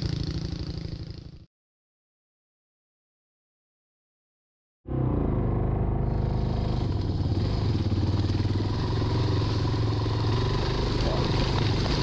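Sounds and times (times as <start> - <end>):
motorcycle engine running: 0.0 - 1.5, 4.9 - 12.0.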